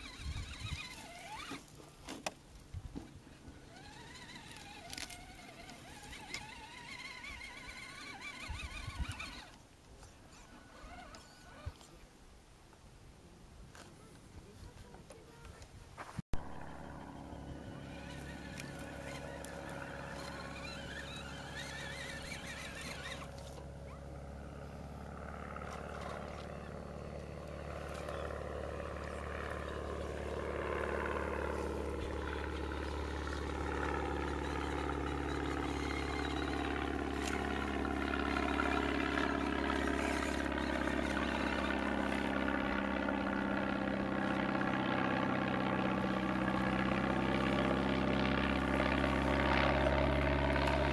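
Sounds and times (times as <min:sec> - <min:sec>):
steady engine drone: 0:16.4 - 0:50.9.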